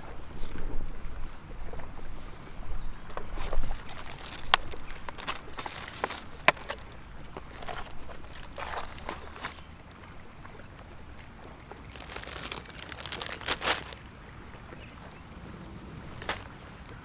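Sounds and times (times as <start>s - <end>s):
wind rumble on microphone: 0.0s - 9.5s
rustling and handling in grass: 0.0s - 14.1s, 16.0s - 17.0s.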